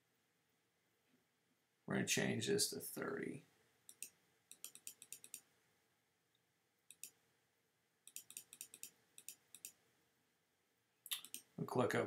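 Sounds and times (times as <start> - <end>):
computer input clicks: 3.9 - 5.4, 8.1 - 9.8, 11.1 - 11.5.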